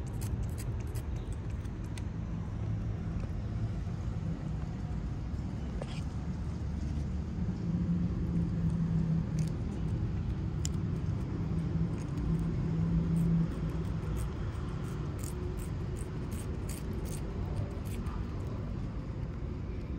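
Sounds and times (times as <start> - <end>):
motor traffic rumble: 0.0 - 19.9.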